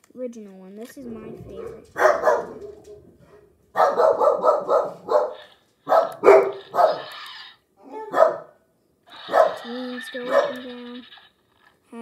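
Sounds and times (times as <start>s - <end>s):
dog barking: 1.6s - 7.2s, 7.8s - 10.7s.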